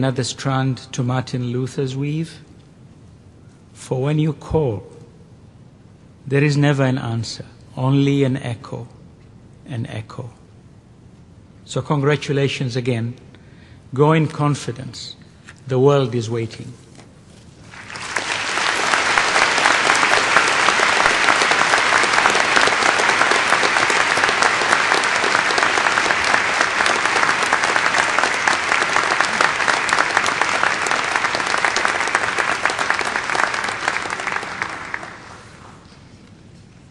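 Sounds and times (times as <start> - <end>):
large crowd clapping: 17.6 - 35.9.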